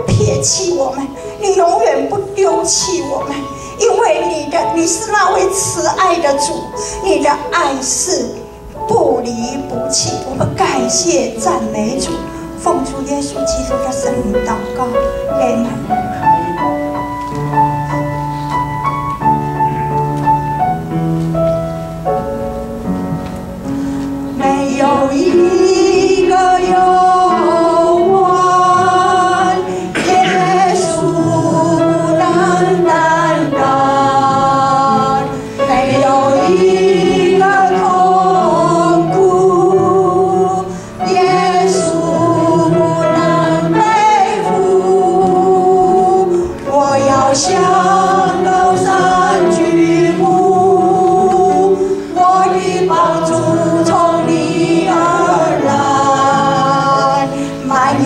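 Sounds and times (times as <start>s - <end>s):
piano: 0.0s - 58.0s
small choir singing: 24.4s - 58.0s
woman singing worship song: 24.4s - 58.0s.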